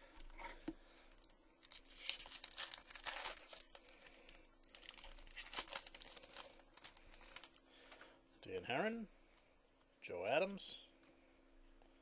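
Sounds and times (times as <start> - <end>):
wrapper tearing and crumpling: 1.6 - 7.6.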